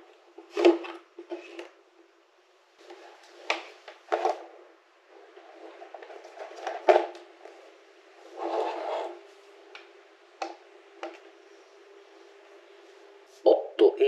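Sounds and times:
faint steady hum: 0:00.0 - 0:14.0
rustling scrape: 0:04.1 - 0:09.7.

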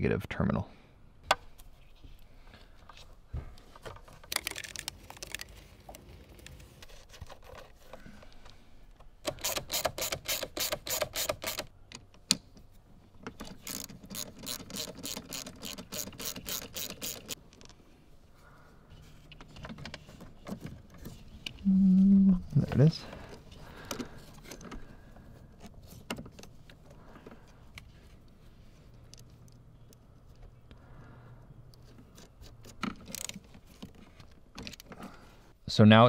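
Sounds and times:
socket ratchet clicking: 0:09.2 - 0:12.5, 0:13.4 - 0:17.4.

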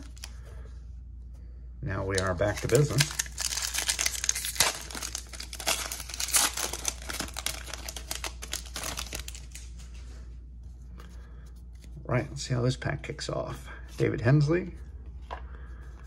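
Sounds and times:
foil wrapper crinkling: 0:02.0 - 0:09.8.

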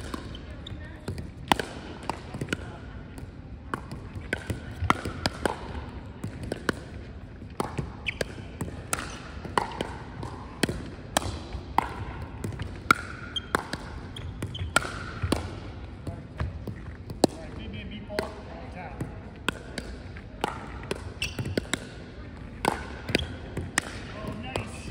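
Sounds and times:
ball bouncing on wooden floor: 0:00.0 - 0:17.5, 0:19.0 - 0:21.9
paddles striking plastic ball: 0:01.0 - 0:17.5, 0:19.0 - 0:24.9
sneakers squeaking on wood: 0:14.1 - 0:14.8, 0:21.2 - 0:21.6.

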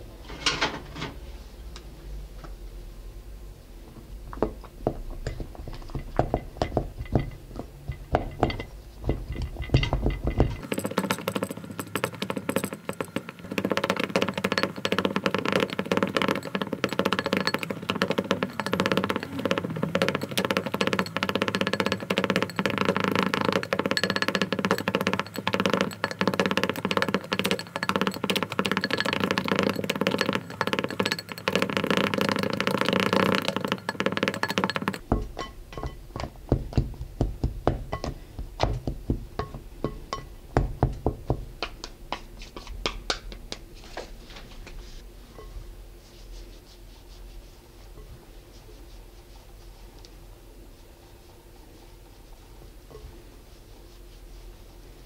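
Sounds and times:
fast clatter of clicks: 0:09.2 - 0:35.0.

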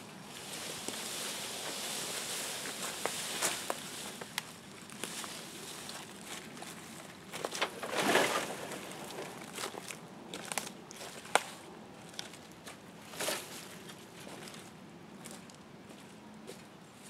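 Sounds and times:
branches and leaves rustling: 0:00.0 - 0:15.6
tree swishing onto cargo bed: 0:07.4 - 0:09.4.

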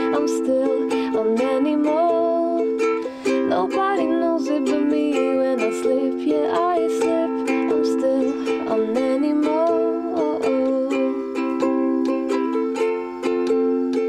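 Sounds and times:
woman singing: 0:00.0 - 0:12.2
ukulele strumming chords: 0:00.0 - 0:14.0.

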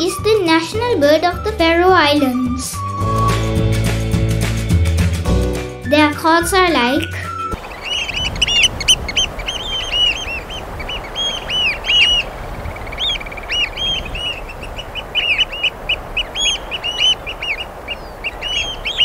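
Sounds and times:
oystercatchers piping: 0:06.8 - 0:19.0.

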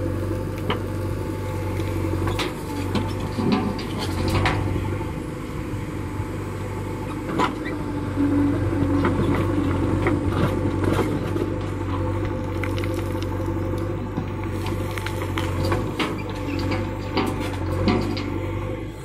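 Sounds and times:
diesel engine running under load: 0:00.0 - 0:19.0.

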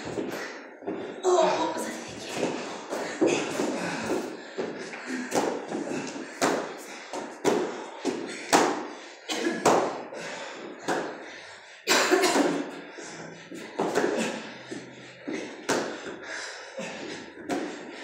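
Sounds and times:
bodies slapping rubber floor mats: 0:02.1 - 0:11.4, 0:12.2 - 0:18.0.

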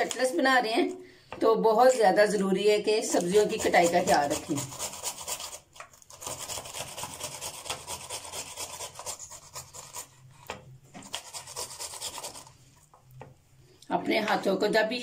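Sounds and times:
pepper rasping on grater: 0:03.1 - 0:10.4, 0:11.0 - 0:12.6.

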